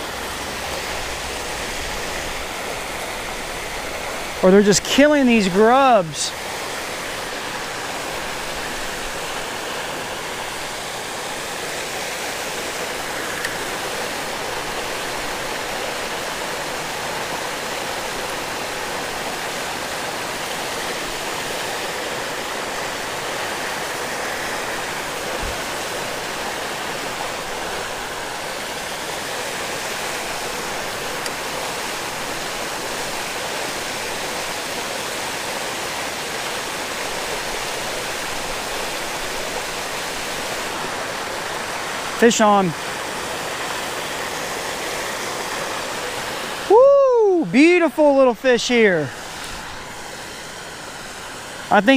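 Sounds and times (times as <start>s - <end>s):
small waterfall splashing: 0.0s - 51.9s.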